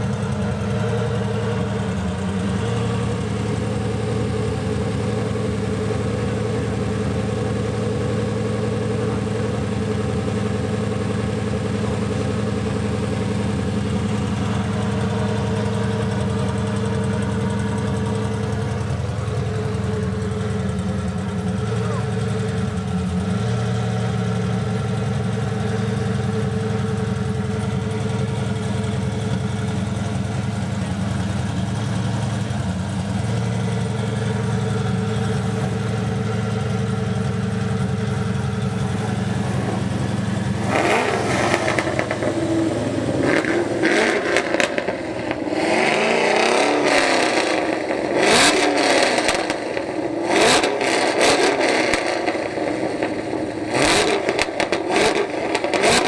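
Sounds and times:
sports car engine idling: 0.0 - 56.0
engine revving in blips: 40.5 - 53.1, 53.7 - 56.0.

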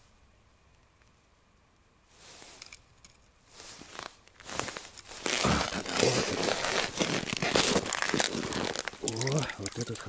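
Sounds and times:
snow crunching: 2.1 - 2.6, 3.4 - 10.0
jacket sleeve rustling: 3.5 - 9.4.

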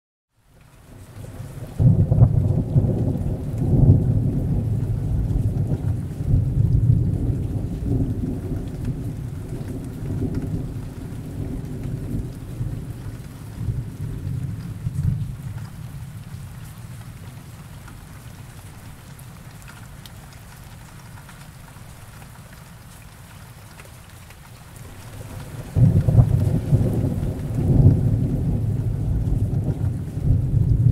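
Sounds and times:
steady rain: 0.3 - 30.9
thunder rumbling: 1.2 - 17.5, 24.8 - 30.9.

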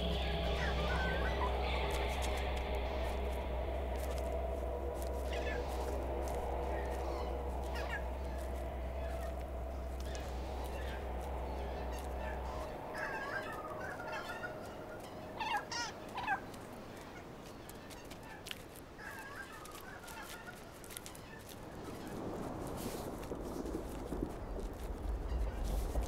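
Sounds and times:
bird wavering cries: 0.0 - 17.1.

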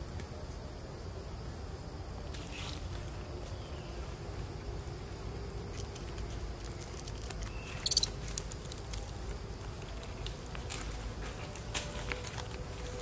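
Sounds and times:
clicks and scrapes on tree bark: 5.7 - 13.0.

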